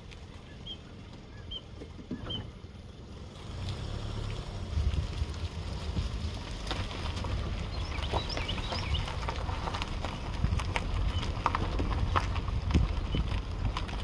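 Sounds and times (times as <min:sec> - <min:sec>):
bird chirps: 0:00.4 - 0:02.5, 0:07.6 - 0:09.2
wind rumbling on microphone: 0:03.5 - 0:14.0.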